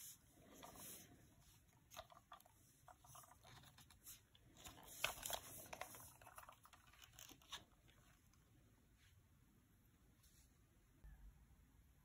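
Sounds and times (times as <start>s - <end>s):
small plastic clicks and rubbing: 1.6s - 8.4s.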